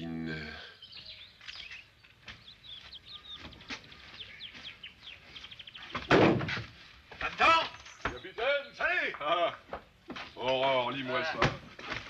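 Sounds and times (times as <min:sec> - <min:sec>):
small bird chirping: 0:00.4 - 0:06.2.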